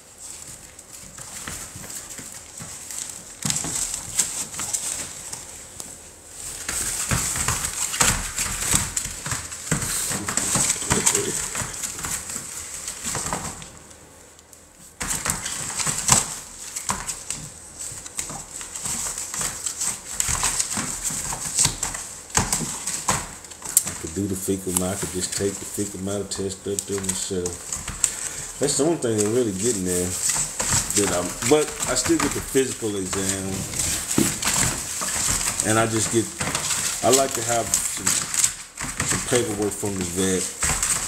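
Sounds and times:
wood shavings rustling: 0:00.0 - 0:13.8, 0:14.9 - 0:41.0
claws scratching on plastic: 0:24.8 - 0:41.0.

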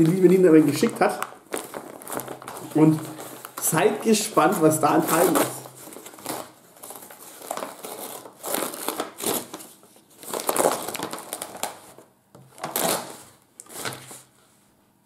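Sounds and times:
paper packaging crinkling: 0:00.0 - 0:14.3.

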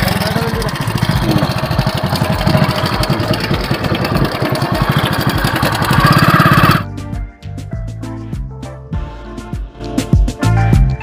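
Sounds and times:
motorcycle engine running: 0:00.0 - 0:06.9
music: 0:06.8 - 0:11.0.

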